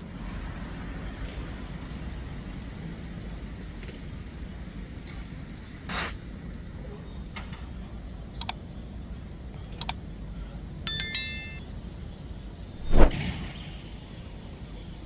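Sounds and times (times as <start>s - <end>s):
ringing metallic ding: 10.9s - 11.6s.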